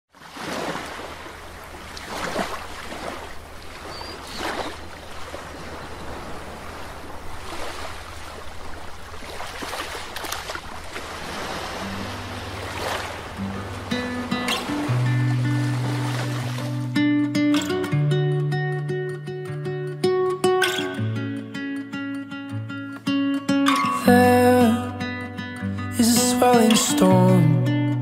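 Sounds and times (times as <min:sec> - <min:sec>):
waves washing onto beach: 0:00.1 - 0:17.0.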